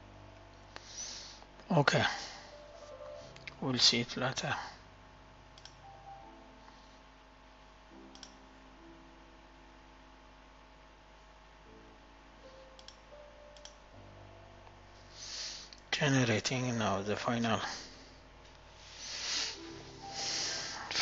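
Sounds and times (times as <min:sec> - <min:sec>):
quiet hum: 0:00.0 - 0:21.0
computer mouse clicks: 0:05.6 - 0:05.8, 0:08.1 - 0:08.4, 0:12.8 - 0:13.0, 0:13.6 - 0:13.8.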